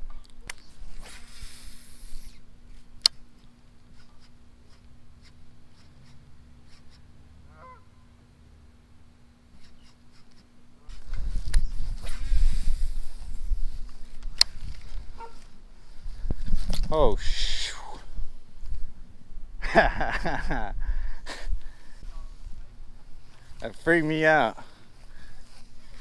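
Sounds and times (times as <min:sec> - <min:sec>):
soft hiss: 0:00.1 - 0:07.2
bird call: 0:07.5 - 0:08.1.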